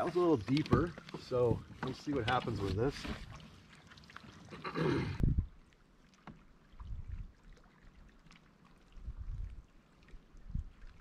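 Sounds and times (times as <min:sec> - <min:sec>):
soft knocks against hull: 0:00.0 - 0:03.4.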